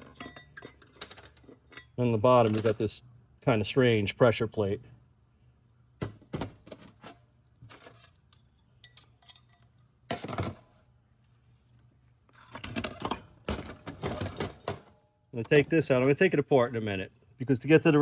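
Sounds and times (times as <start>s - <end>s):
metal parts clinking: 0.0s - 2.8s, 8.3s - 9.8s.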